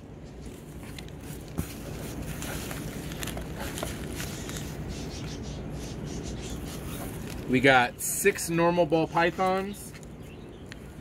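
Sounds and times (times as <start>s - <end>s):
mesh bag rustling: 0.2s - 4.8s.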